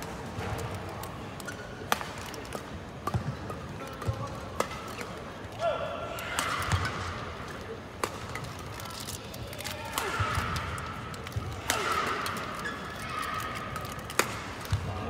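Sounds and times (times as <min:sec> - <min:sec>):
murmur of hall: 0:00.0 - 0:15.0
shoes squeaking on court: 0:01.4 - 0:02.5, 0:10.0 - 0:14.8
racket striking shuttlecock: 0:01.9 - 0:05.1, 0:06.3 - 0:07.3, 0:07.9 - 0:08.6, 0:13.6 - 0:14.9.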